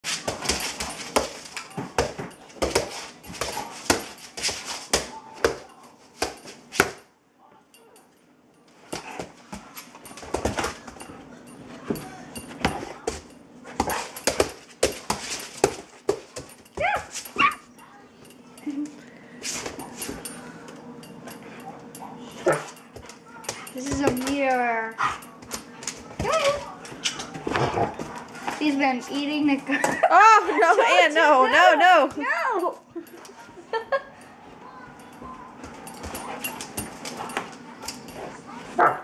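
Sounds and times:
dog whining: 16.8s - 17.7s.

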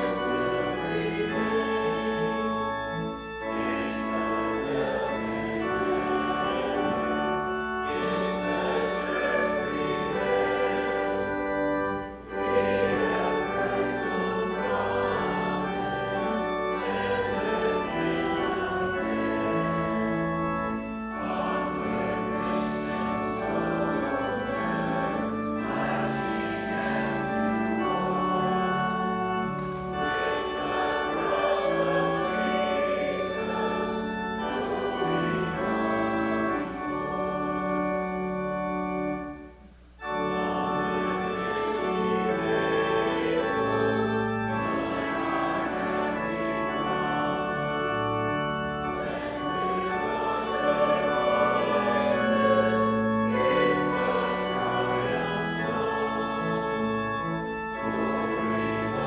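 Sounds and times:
church organ chords: 0.0s - 59.0s.

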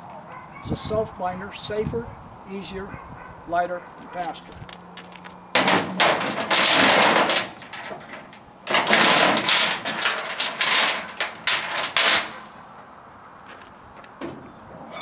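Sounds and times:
steel chain rattling and clanking: 5.5s - 12.6s.

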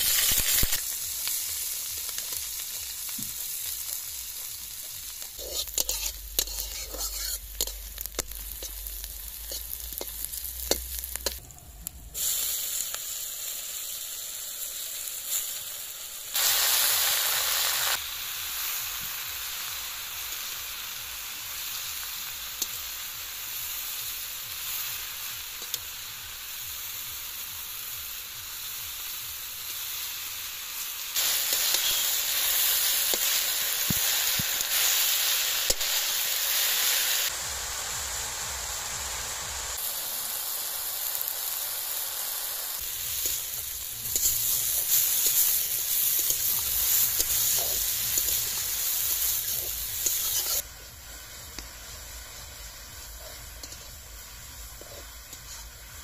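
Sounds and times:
food sizzling in a pan: 0.0s - 56.0s
metal spatula scraping a pan: 5.4s - 11.4s, 31.2s - 32.3s, 43.2s - 50.6s.

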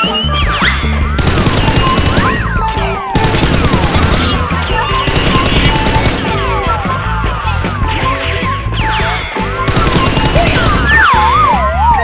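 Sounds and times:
background music: 0.0s - 12.0s
machine-gun fire: 1.2s - 2.5s, 3.2s - 6.8s, 9.7s - 11.2s.

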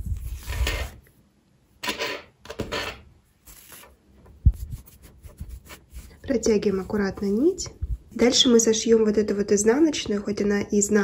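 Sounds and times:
rustling of yarn and knitted fabric: 3.3s - 8.7s.

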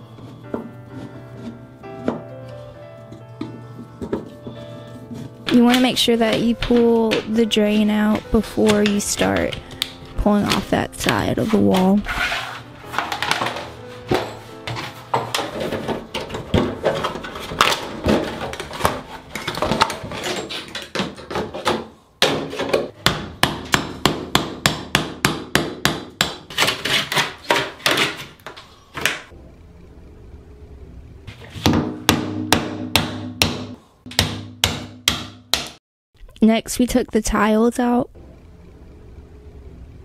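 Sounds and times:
hammer striking chisel: 5.5s - 9.9s, 20.9s - 28.2s, 31.6s - 35.8s.

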